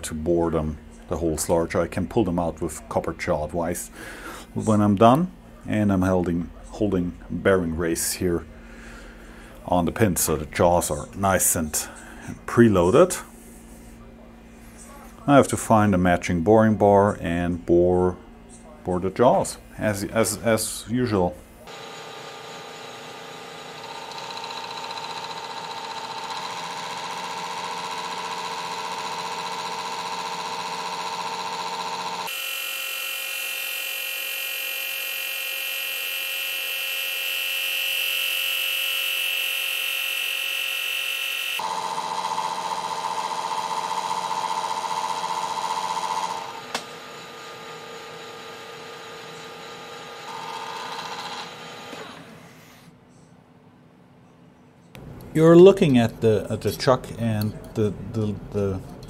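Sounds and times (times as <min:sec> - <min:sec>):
lathe motor whining: 0:21.7 - 0:52.6.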